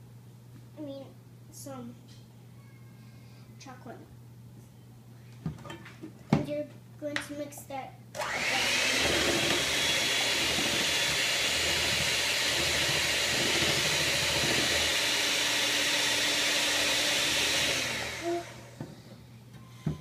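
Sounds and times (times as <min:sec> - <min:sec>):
electric hand mixer whisking batter: 0:08.2 - 0:18.9.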